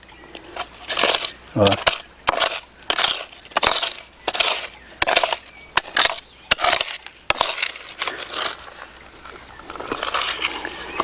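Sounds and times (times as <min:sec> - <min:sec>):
hoe chopping into gravelly earth: 0:00.9 - 0:08.6.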